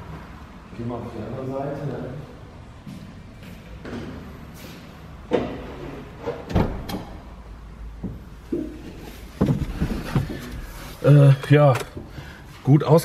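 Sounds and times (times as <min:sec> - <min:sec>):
knocks and thuds in car cabin: 0:08.0 - 0:10.7.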